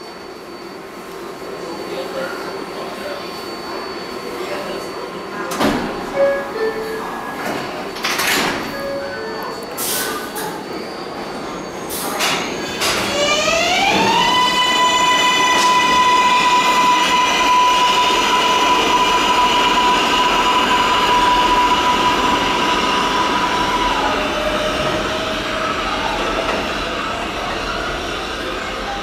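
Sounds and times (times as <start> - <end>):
train electric motor whine: 12.4 - 28.9.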